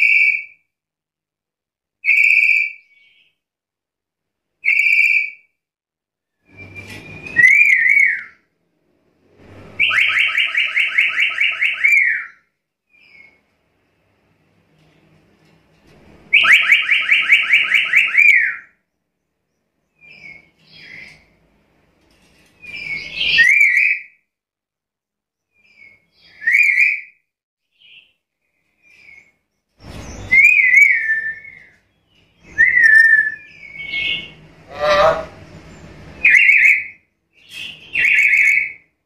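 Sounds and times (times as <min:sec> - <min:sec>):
parrot shrill whistled calls: 0:02.0 - 0:03.2, 0:04.6 - 0:05.4, 0:06.4 - 0:08.4, 0:09.8 - 0:12.4, 0:16.3 - 0:18.7, 0:22.6 - 0:24.2, 0:25.8 - 0:27.1, 0:30.2 - 0:31.8, 0:32.4 - 0:35.3, 0:36.2 - 0:38.8.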